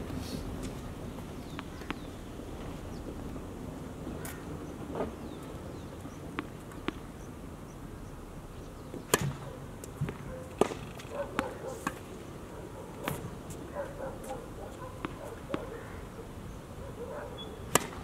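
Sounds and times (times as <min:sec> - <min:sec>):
tennis ball bouncing on court: 0:01.5 - 0:02.1, 0:06.3 - 0:07.1, 0:08.9 - 0:12.0, 0:15.0 - 0:15.8, 0:17.7 - 0:18.0
racket hitting tennis ball: 0:09.0 - 0:09.4, 0:10.0 - 0:12.1, 0:17.7 - 0:18.0.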